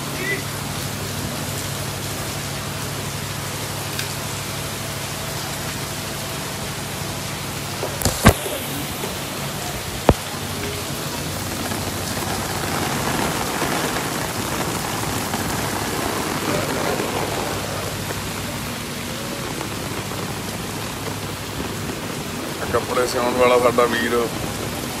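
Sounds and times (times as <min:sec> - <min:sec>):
heavy rain: 0:00.0 - 0:25.0.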